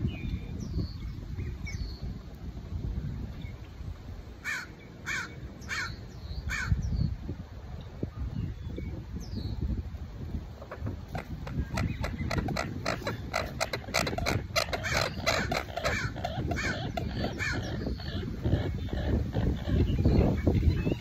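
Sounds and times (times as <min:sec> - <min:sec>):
wind buffeting microphone: 0:00.0 - 0:21.0
harsh bird calls: 0:04.4 - 0:07.1, 0:10.8 - 0:21.0.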